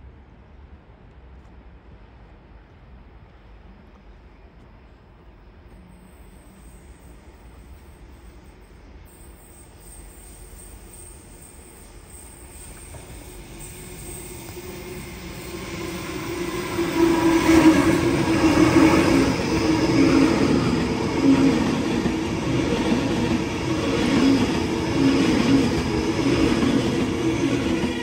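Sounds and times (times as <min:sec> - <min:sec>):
train wheels rumbling on rails: 0:00.9 - 0:28.0.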